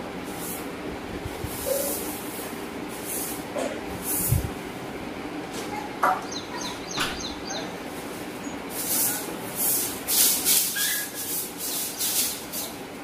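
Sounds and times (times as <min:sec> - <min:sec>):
broom sweeping tiled floor: 0:00.0 - 0:04.6, 0:07.9 - 0:13.0.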